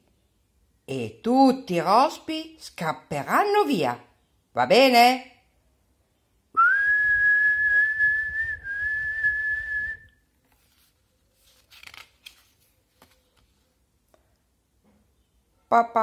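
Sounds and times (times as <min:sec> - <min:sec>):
woman whistling high note: 0:06.6 - 0:10.2.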